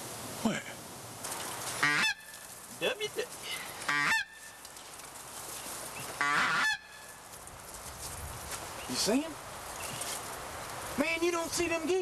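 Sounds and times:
geese honking: 0:01.8 - 0:02.4, 0:03.8 - 0:04.5, 0:06.2 - 0:07.1.

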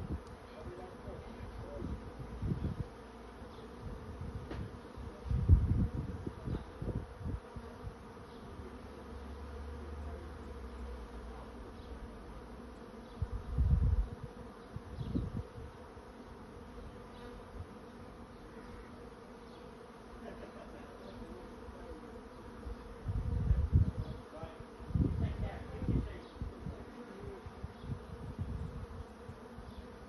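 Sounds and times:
bees buzzing in a swarm: 0:00.0 - 0:30.0
low rumbles on microphone: 0:03.8 - 0:07.4, 0:13.2 - 0:15.5, 0:23.0 - 0:24.2, 0:24.9 - 0:26.8.

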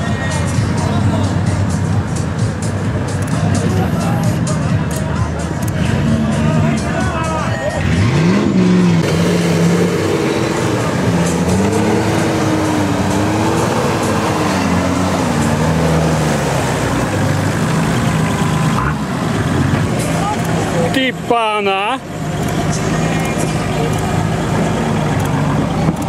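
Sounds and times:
engine revving under load: 0:07.7 - 0:26.0.

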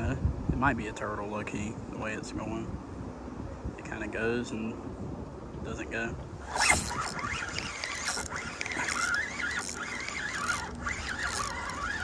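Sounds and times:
fishing reel whirring: 0:06.4 - 0:12.0.

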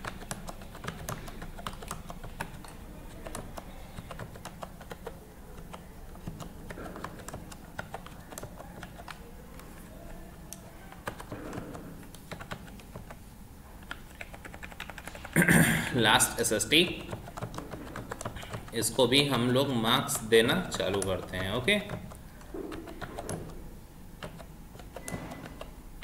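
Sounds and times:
keyboard key clicks: 0:00.0 - 0:13.2, 0:16.9 - 0:18.8, 0:20.4 - 0:25.8
steady low hum: 0:00.0 - 0:26.0.

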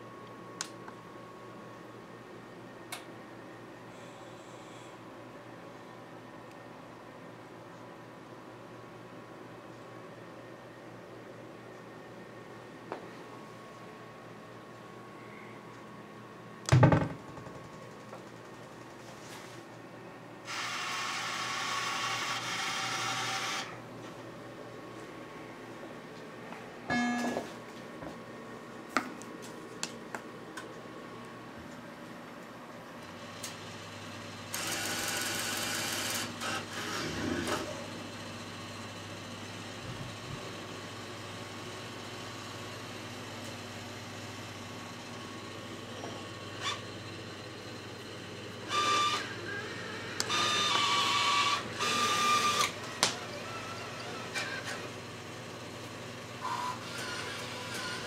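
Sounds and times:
low hum of machines: 0:00.0 - 0:58.0
small electric mechanism whirring: 0:20.5 - 0:23.8, 0:34.5 - 0:37.8, 0:48.7 - 0:54.8, 0:56.4 - 0:58.0
short electronic beep: 0:26.9 - 0:27.4.

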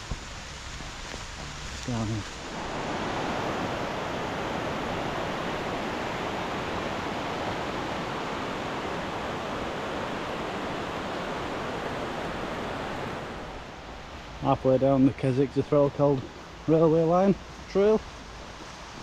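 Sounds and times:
heavy rain: 0:00.0 - 0:15.2
wind: 0:00.0 - 0:19.0.

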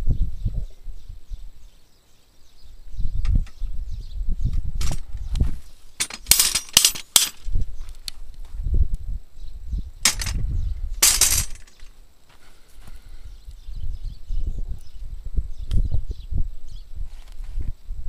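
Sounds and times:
steel plates clanking: 0:06.0 - 0:07.4, 0:11.0 - 0:11.8.

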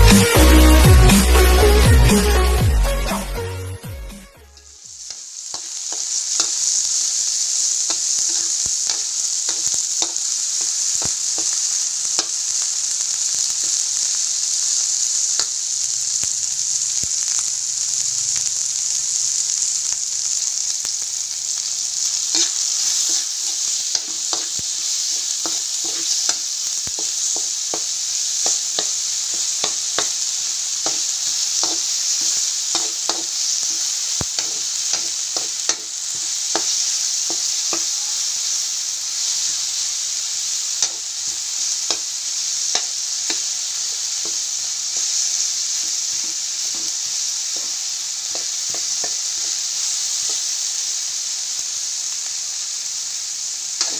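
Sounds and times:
food sizzling in a wok: 0:00.0 - 0:53.9
spatula scraping pan: 0:07.9 - 0:11.6, 0:22.3 - 0:38.1, 0:46.2 - 0:49.6.

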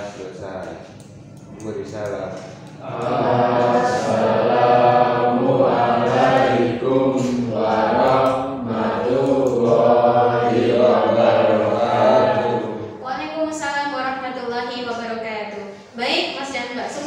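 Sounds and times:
voices chanting in unison: 0:02.8 - 0:13.0.

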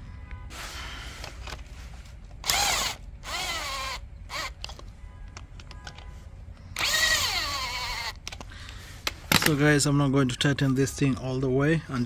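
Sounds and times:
electric ratchet motor whine: 0:02.4 - 0:04.7, 0:06.7 - 0:08.2.

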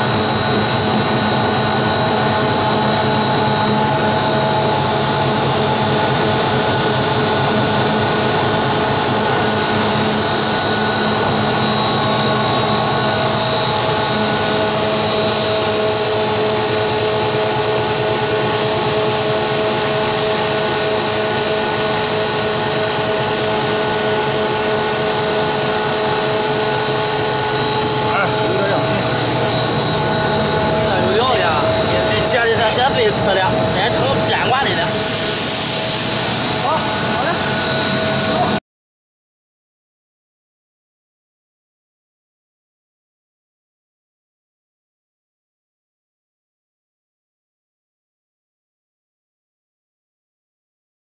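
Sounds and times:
machine running with high whine: 0:00.0 - 0:38.6.

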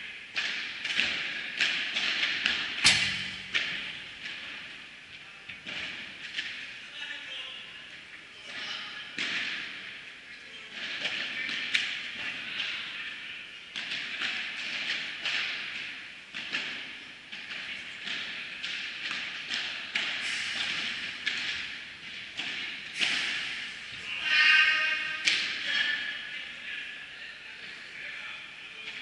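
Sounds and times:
balls struck by rackets: 0:00.3 - 0:04.9, 0:05.5 - 0:06.8, 0:08.5 - 0:10.1, 0:10.7 - 0:24.0, 0:25.0 - 0:26.1
ball bouncing on court and glass: 0:00.4 - 0:04.6, 0:08.5 - 0:09.7.

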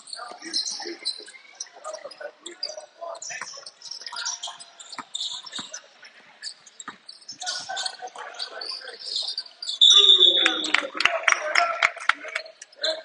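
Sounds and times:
background voices: 0:00.0 - 0:13.0
shoes squeaking on floor: 0:03.2 - 0:10.7.

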